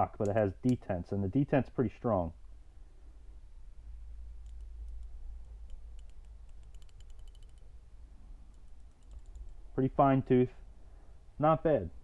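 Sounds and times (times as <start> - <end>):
low hum: 2.3 - 12.0
hand ratchet clicking: 5.7 - 7.7.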